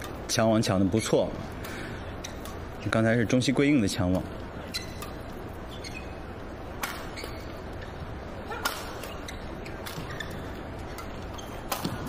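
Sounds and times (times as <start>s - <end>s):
racket hitting shuttlecock: 6.8s - 7.5s, 8.5s - 12.0s.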